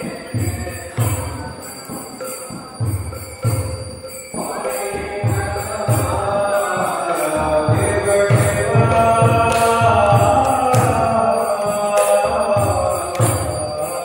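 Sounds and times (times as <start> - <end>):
bell ringing: 0.0 - 14.0
steady drum beats: 0.0 - 14.0
group chanting: 4.4 - 14.0.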